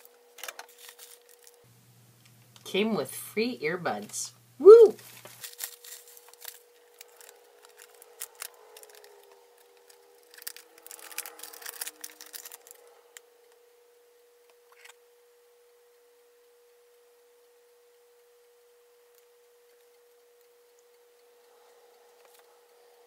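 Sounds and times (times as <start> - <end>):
bubble wrap crinkling: 0.0 - 1.6, 4.9 - 12.9
thin steady tone: 12.6 - 23.0.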